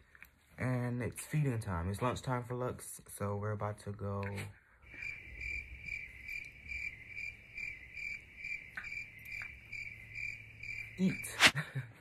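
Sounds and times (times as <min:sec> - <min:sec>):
cricket chirping: 0:04.8 - 0:11.6.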